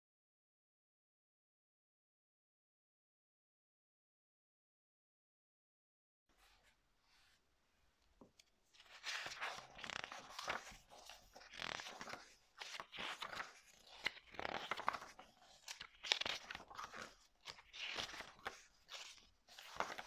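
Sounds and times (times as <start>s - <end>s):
book pages flipping: 8.2s - 20.0s.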